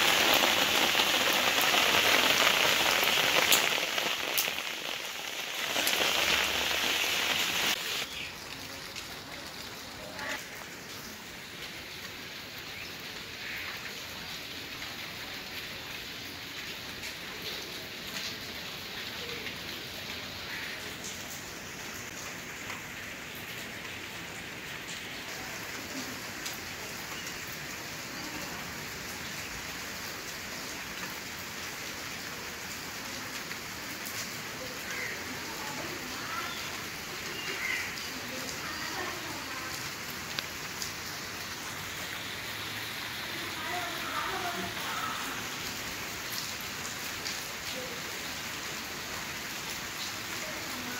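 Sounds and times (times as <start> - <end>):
individual raindrop taps: 0.0 - 8.0, 39.7 - 41.0
rain pattering on pavement: 0.0 - 50.9.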